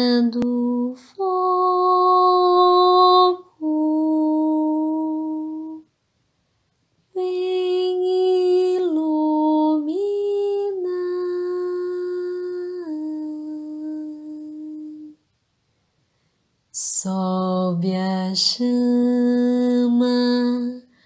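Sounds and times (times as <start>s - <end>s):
woman singing unaccompanied: 0.0s - 5.9s, 7.1s - 15.2s, 16.8s - 21.0s.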